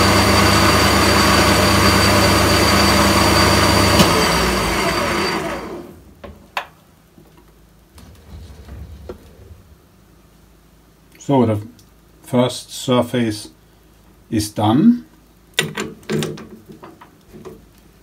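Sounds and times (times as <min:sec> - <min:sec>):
lathe winding down: 0:00.0 - 0:05.9, 0:08.0 - 0:09.9.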